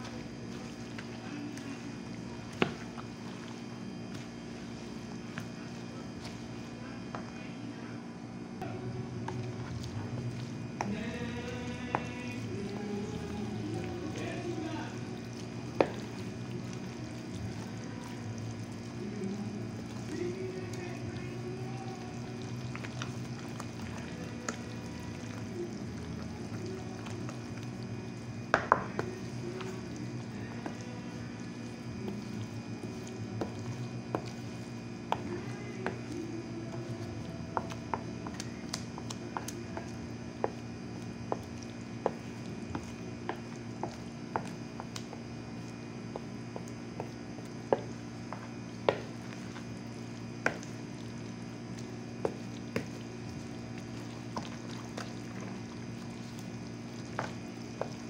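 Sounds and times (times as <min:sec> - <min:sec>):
wet batter squishing: 0:00.0 - 0:07.9, 0:08.6 - 0:58.0
steady low hum: 0:00.0 - 0:58.0.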